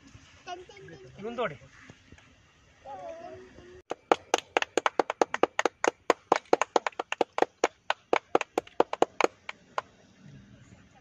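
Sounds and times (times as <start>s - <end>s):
sharp hand claps: 3.9s - 9.9s.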